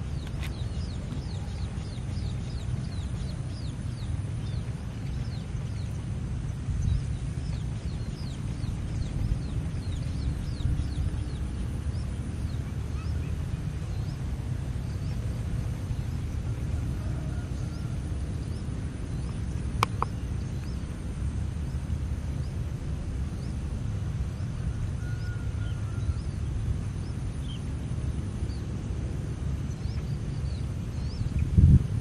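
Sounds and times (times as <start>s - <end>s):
bird chirping: 0.0s - 22.6s, 29.6s - 32.0s
low rumble: 0.0s - 32.0s
sharp clicks: 19.8s - 20.2s.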